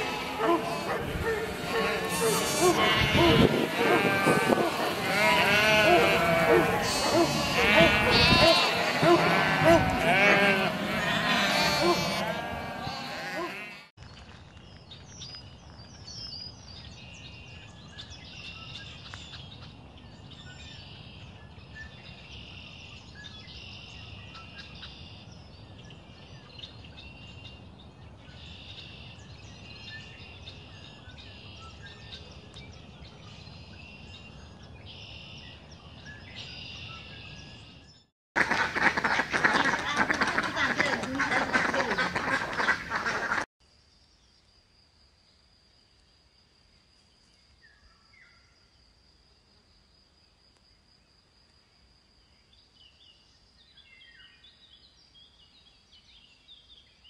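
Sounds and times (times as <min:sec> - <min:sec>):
ducks quacking: 0:00.0 - 0:13.8, 0:38.4 - 0:43.5
sheep bleat: 0:00.0 - 0:13.9.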